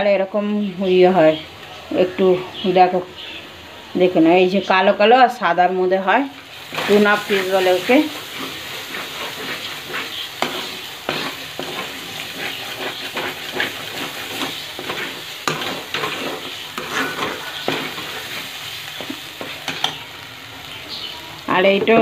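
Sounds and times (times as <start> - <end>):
paste sizzling in oil: 5.6 - 21.8
spatula scraping a pan: 6.5 - 20.0.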